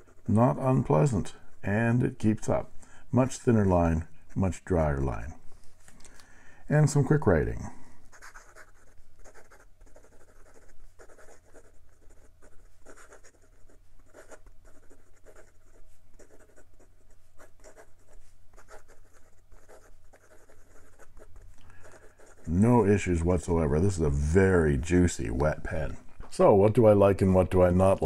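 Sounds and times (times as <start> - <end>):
fountain pen writing on paper: 8.1 - 22.5.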